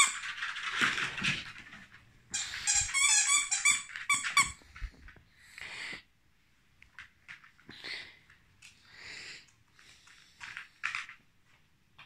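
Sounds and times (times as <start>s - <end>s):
dog toy squeaking: 0.0s - 0.3s, 2.3s - 4.6s.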